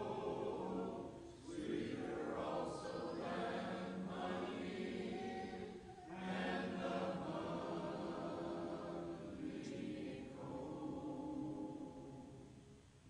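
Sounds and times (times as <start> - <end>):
congregation singing a hymn: 0.0 - 12.7.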